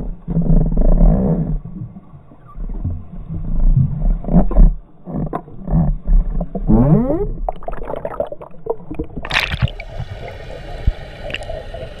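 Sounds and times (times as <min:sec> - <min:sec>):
underwater water rushing: 0:04.0 - 0:12.0.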